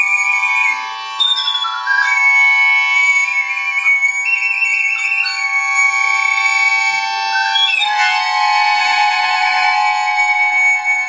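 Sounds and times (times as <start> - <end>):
recorder playing high notes: 0.0 - 11.0
accordion sustained chord: 6.8 - 11.0.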